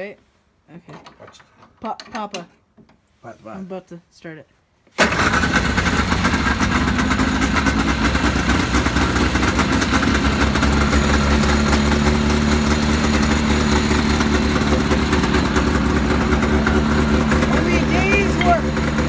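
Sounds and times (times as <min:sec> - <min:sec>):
snowmobile engine idling: 0:05.2 - 0:19.0.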